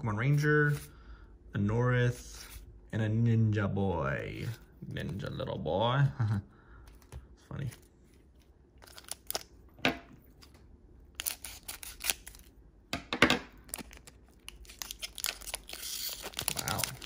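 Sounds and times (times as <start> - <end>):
foil wrapper crinkling and tearing: 8.8 - 9.6, 11.1 - 12.6, 13.6 - 17.0.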